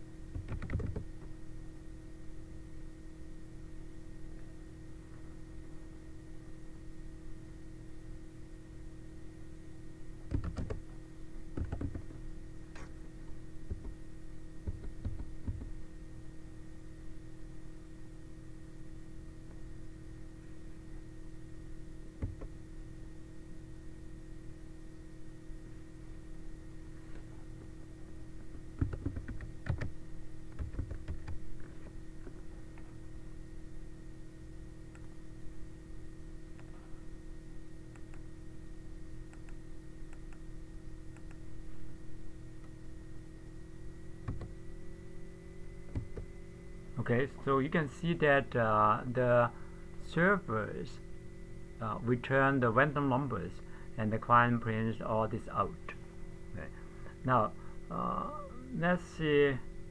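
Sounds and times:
steady electrical hum: 0:00.0 - 0:59.9
computer keys clicking: 0:00.4 - 0:01.1, 0:10.3 - 0:10.8, 0:11.6 - 0:12.1, 0:28.8 - 0:29.9, 0:30.5 - 0:31.4.

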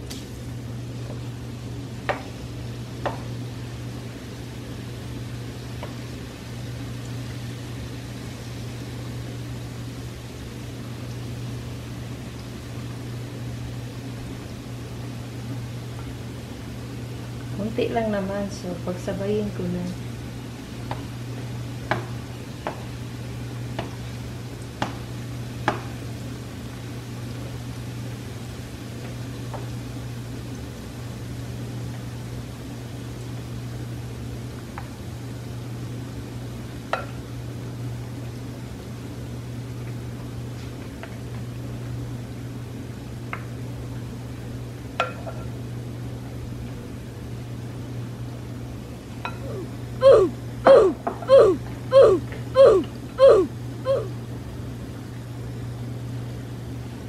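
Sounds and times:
eggs sizzling in oil: 0:00.0 - 0:46.7
steady low hum: 0:00.0 - 0:57.0
spatula knocking against pan: 0:21.9 - 0:22.8.

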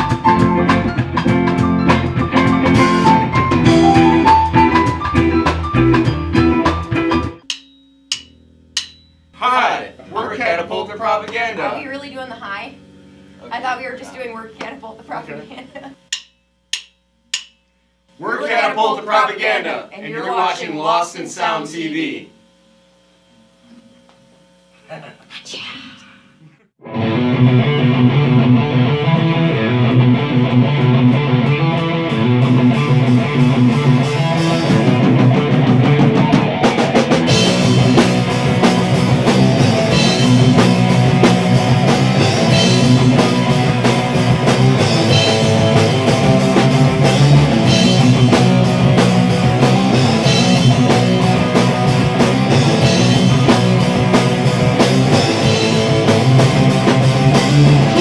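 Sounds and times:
electric guitar: 0:00.0 - 0:07.4, 0:26.8 - 0:58.0
drum kit: 0:00.0 - 0:12.8, 0:13.5 - 0:17.6, 0:26.9 - 0:58.0
bass guitar: 0:00.0 - 0:16.2, 0:26.8 - 0:58.0
cymbals: 0:07.4 - 0:09.4.

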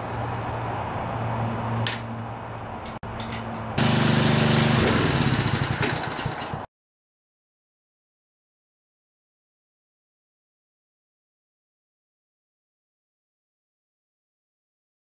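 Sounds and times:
lawnmower engine running slowly: 0:02.8 - 0:06.7.

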